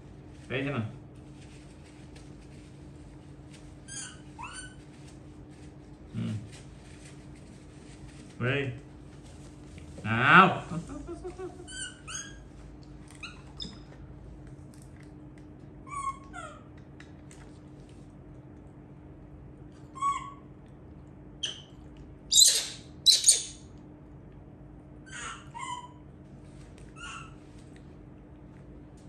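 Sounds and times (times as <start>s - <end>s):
baby monkey squeaking: 3.9s - 4.8s, 11.7s - 12.5s, 22.3s - 23.6s, 25.1s - 26.0s, 27.0s - 27.4s
baby monkey squealing: 3.9s - 4.8s, 11.6s - 12.5s, 15.9s - 16.6s, 20.0s - 20.4s, 22.3s - 23.6s, 25.1s - 26.0s, 27.0s - 27.4s.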